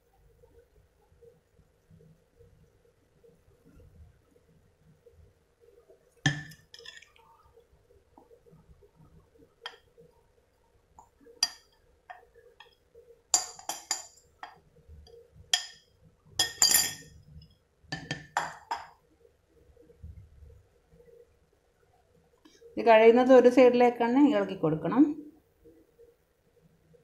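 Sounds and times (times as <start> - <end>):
utensils clinking against glass bowl: 16.4 - 17.1.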